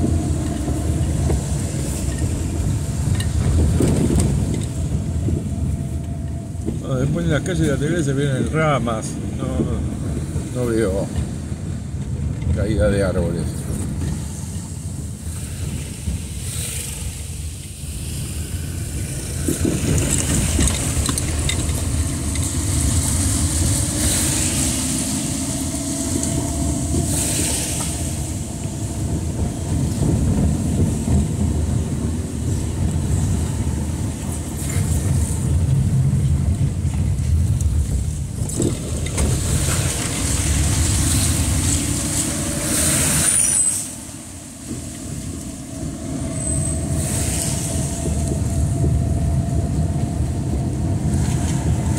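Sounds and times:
car engine: 13.3 - 51.9
tyre hiss on wet road: 14.2 - 29.1, 39.2 - 45.7, 46.4 - 48.8.

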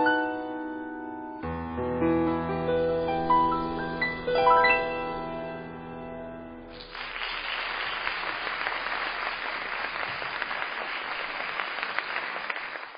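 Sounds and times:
piano chord ringing: 0.0 - 6.8
audience applause: 6.7 - 12.9.

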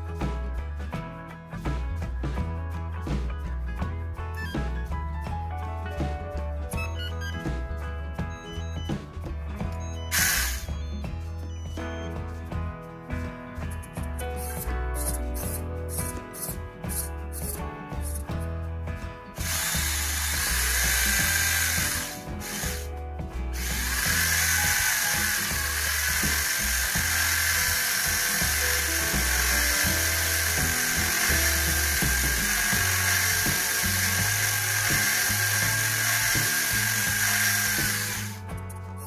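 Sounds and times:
background music: 0.0 - 39.0
small electric motors whining: 9.7 - 12.1, 19.4 - 22.9, 23.5 - 38.8.

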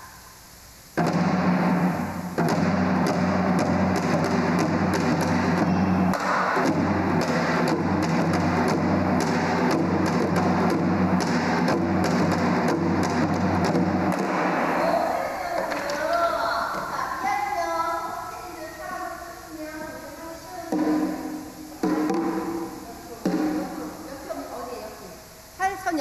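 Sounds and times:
sharp percussion strikes: 0.9 - 17.6, 20.6 - 25.6
deep drum beats: 1.0 - 17.3, 20.7 - 24.4.

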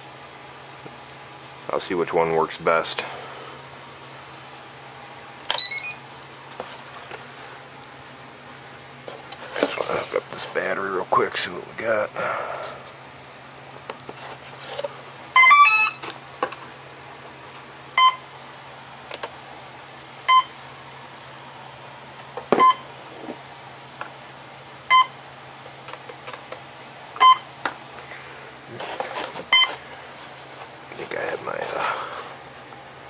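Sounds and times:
short electronic beeps: 5.5 - 6.0, 22.6 - 22.8, 24.9 - 25.2, 27.2 - 27.5.

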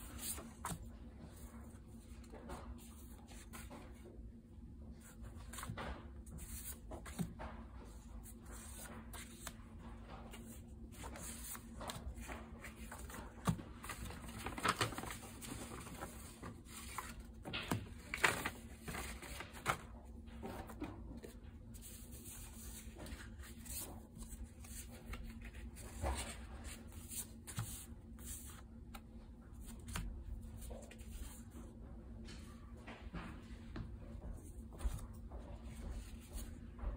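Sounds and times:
paper handling noises: 0.0 - 4.2, 4.9 - 36.9
paper notecards rustling: 8.2 - 31.5.

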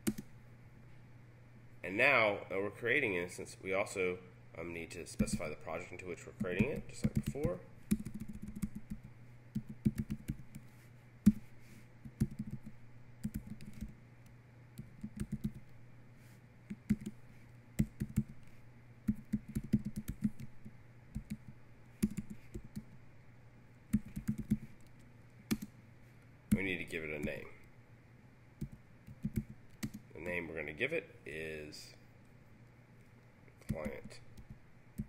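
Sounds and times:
keyboard typing clicks: 0.0 - 0.3, 6.4 - 10.6, 12.1 - 14.0, 14.8 - 15.6, 16.7 - 17.2, 17.8 - 18.4, 19.1 - 20.5, 21.1 - 23.0, 23.9 - 25.7, 28.6 - 30.0, 33.6 - 35.0
low steady hum: 0.0 - 35.0.

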